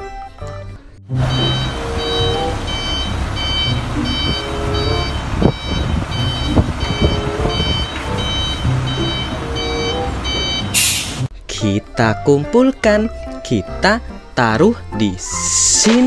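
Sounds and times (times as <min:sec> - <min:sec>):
diesel truck engine running: 0:01.1 - 0:11.3
reversing alarm beeping: 0:01.2 - 0:11.2.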